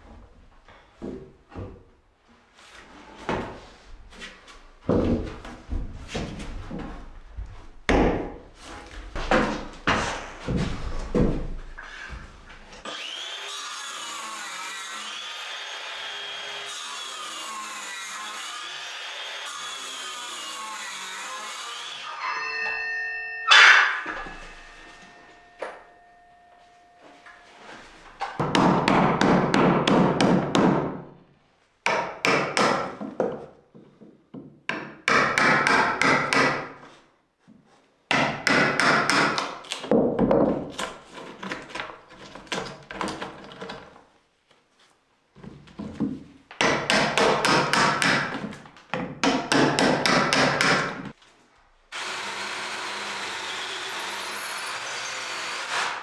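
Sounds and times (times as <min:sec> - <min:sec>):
hammer striking wood: 0:07.9 - 0:08.4, 0:23.5 - 0:26.0, 0:28.3 - 0:31.0, 0:31.8 - 0:33.4, 0:34.4 - 0:36.7, 0:38.1 - 0:40.6, 0:46.6 - 0:51.2.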